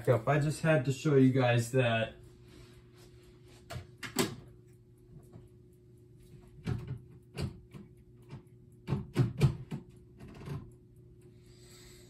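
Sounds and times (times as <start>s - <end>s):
steady low hum: 0.0s - 12.0s
objects knocking and clunking: 6.6s - 10.7s.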